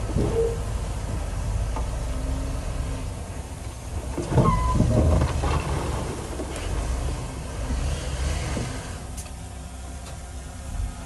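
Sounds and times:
diesel machinery rumbling: 0.0 - 11.0
brief squeal: 0.2 - 0.7, 4.4 - 4.9.

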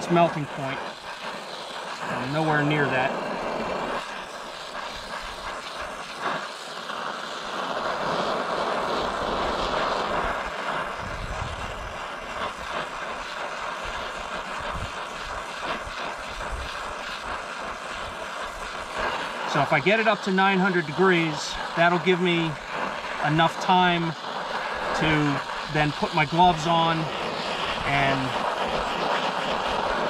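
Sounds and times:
gas torch flame hissing: 0.0 - 30.0.

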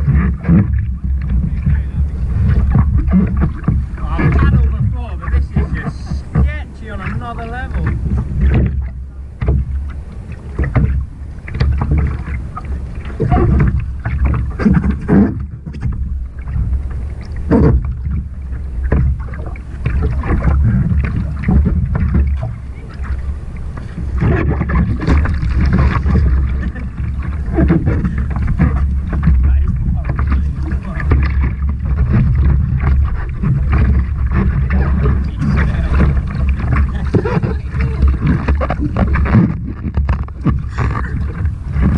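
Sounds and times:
kayak paddle splashing in water: 0.0 - 41.9
low wind rumble on microphone: 0.0 - 41.9.

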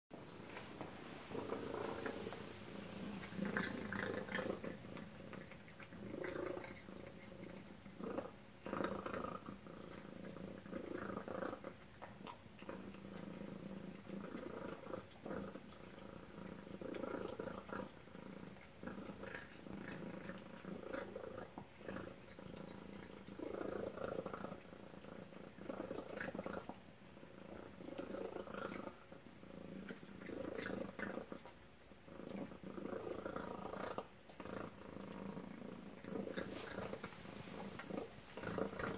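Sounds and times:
cat chewing wet food: 0.5 - 31.6.

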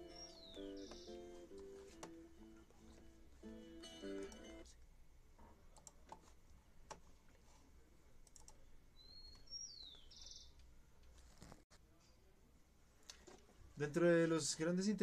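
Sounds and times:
high gliding chirp: 0.0 - 1.4
computer mouse and keyboard clicks: 8.2 - 8.6.

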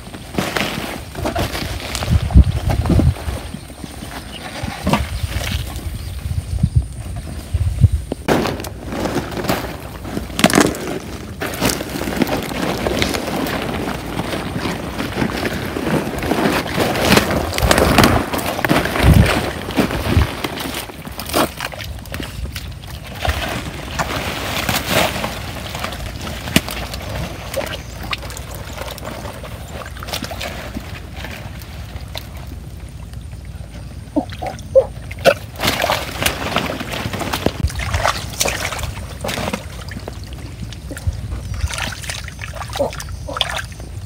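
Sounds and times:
hands squelching in wet mud: 25.6 - 43.8
splashes in muddy water: 34.2 - 43.8.

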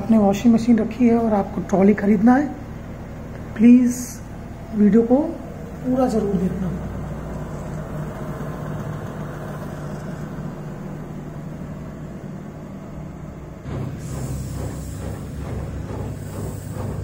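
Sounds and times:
washing machine spinning: 0.0 - 17.0
rapidly pulsing sound: 13.5 - 17.0.

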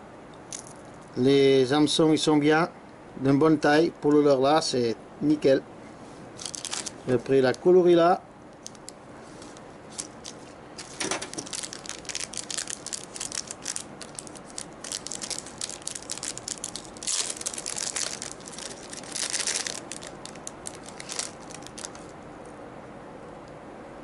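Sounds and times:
plastic packaging crinkling: 6.4 - 7.2, 8.6 - 22.1.

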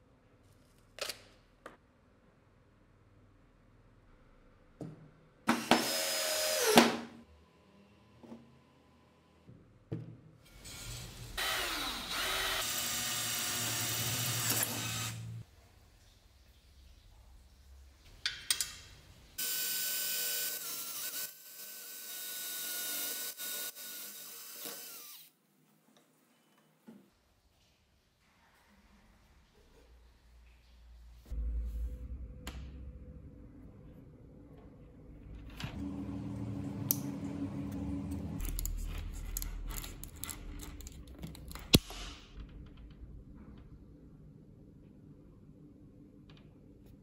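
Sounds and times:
power drill whining: 5.6 - 7.0, 11.4 - 15.4, 19.4 - 25.3.

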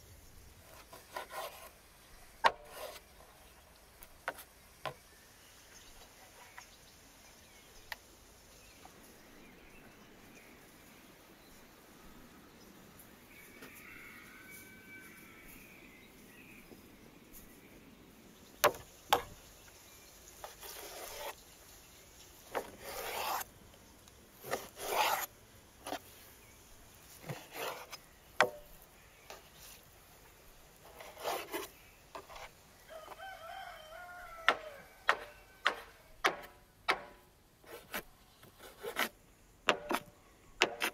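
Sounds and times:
rooster crowing: 13.6 - 15.4, 32.9 - 36.1
knife slicing strokes: 22.6 - 23.5, 24.4 - 25.3, 30.9 - 32.5.

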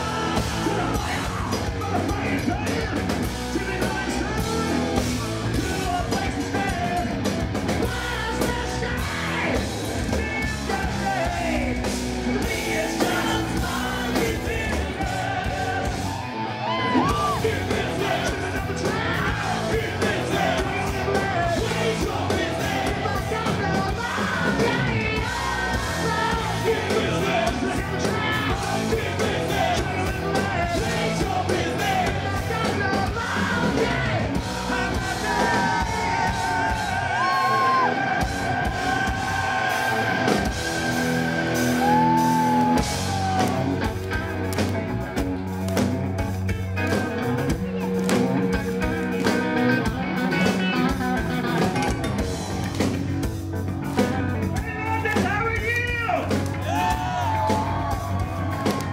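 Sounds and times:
man singing and yelling: 0.0 - 43.9, 54.3 - 58.9
hard rock band playing: 0.0 - 58.9.

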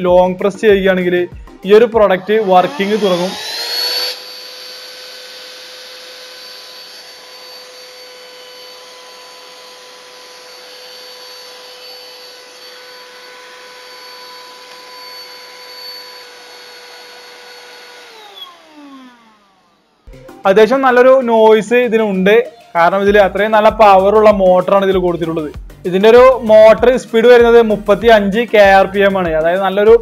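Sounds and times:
handheld vacuum cleaner whine: 1.7 - 20.1.

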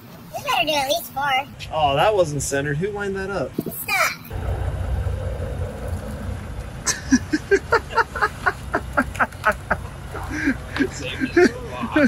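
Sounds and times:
pickup truck engine running: 4.3 - 12.0
people laughing: 6.8 - 12.0.

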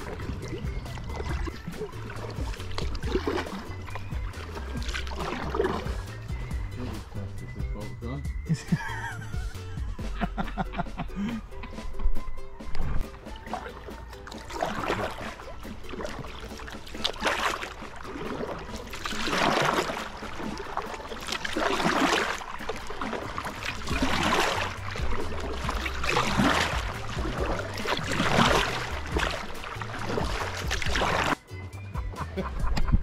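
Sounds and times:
kayak paddle splashing in water: 0.0 - 7.2, 12.8 - 31.4.

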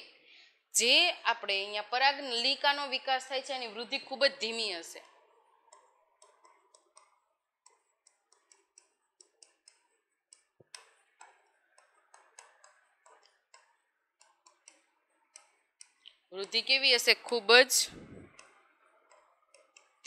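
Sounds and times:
chalk tapping on blackboard: 5.0 - 16.6, 18.3 - 20.0.

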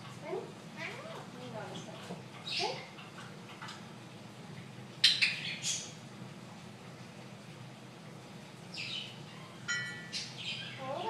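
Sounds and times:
parakeet squawking and chirping: 2.4 - 2.9, 5.0 - 6.0, 8.7 - 11.0.

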